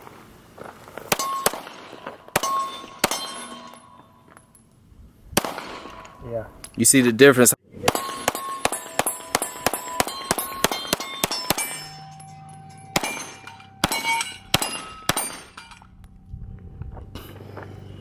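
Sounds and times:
pistol shots: 1.1 - 3.8, 5.4 - 6.2, 7.8 - 15.6
steel targets ringing: 1.1 - 4.7, 7.8 - 16.2.

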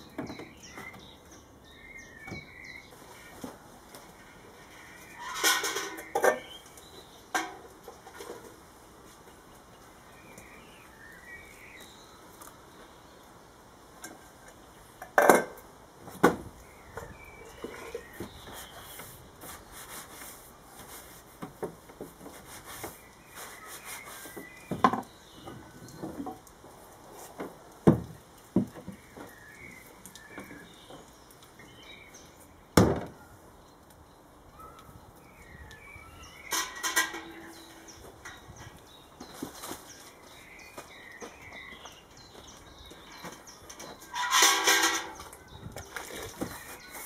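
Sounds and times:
handling noise: 36.4 - 47.0.

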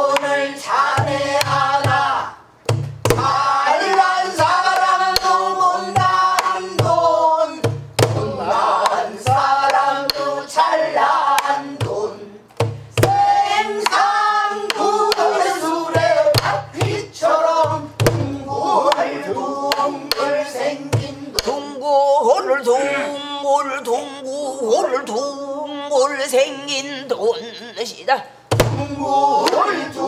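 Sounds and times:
deep drum thumps: 1.0 - 3.5, 6.0 - 8.4, 12.6 - 14.0, 15.9 - 18.6, 20.9 - 21.2, 28.5 - 29.0
drum stick knocks: 8.8 - 10.3, 16.0 - 17.0
woman singing: 22.8 - 28.1.

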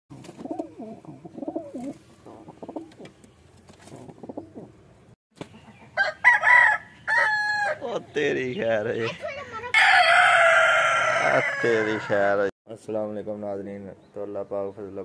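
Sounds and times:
pigeons cooing: 0.1 - 4.9
rooster crowing: 6.0 - 7.9, 9.8 - 12.4.

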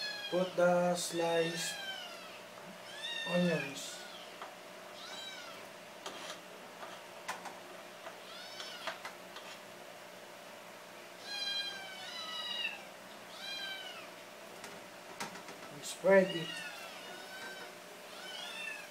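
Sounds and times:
cat meowing: 1.5 - 4.4, 5.0 - 5.6, 8.2 - 9.0, 11.2 - 14.1, 16.2 - 18.9.

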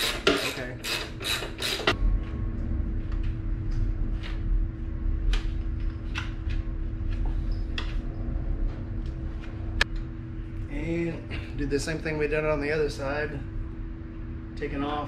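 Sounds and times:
screwdriver scraping metal: 0.0 - 2.0
steady low rumble: 1.9 - 15.0.

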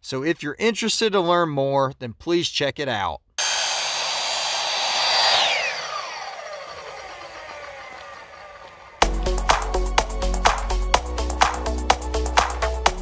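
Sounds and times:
miter saw cutting aluminum: 3.4 - 9.1
music: 9.0 - 13.0.

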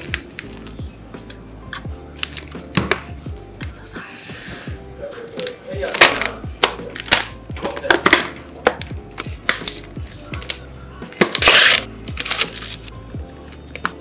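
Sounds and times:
background music: 0.0 - 14.0
film lid ripping off: 11.2 - 13.9.

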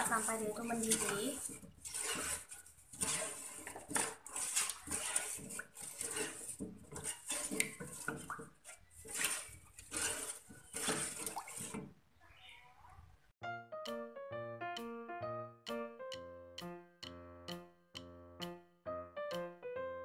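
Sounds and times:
wooden spoon stirring in saucepan: 0.0 - 12.1
light keyboard tune: 13.4 - 20.0.

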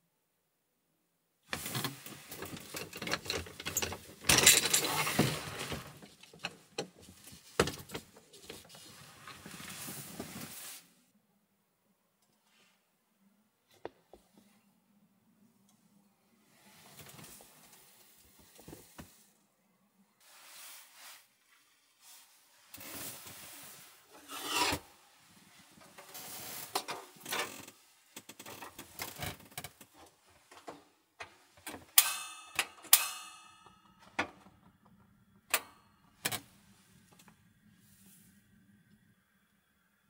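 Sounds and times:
rustling and scraping: 1.5 - 11.0, 20.2 - 30.8.

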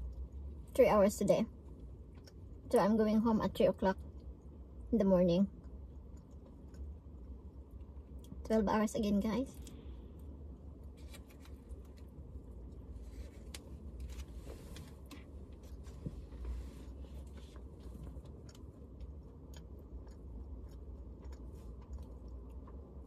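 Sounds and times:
low hum inside car: 0.0 - 23.0
person chewing food: 1.6 - 2.7, 5.6 - 8.4, 9.5 - 23.0.

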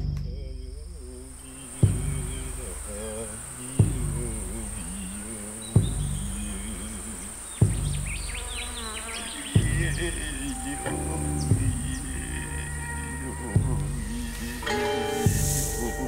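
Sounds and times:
bird chirps: 0.0 - 16.0
high insect drone: 0.1 - 16.0
flies buzzing: 0.5 - 16.0
deep drum beat: 1.8 - 3.0, 3.8 - 5.0, 5.8 - 8.4, 9.6 - 16.0.

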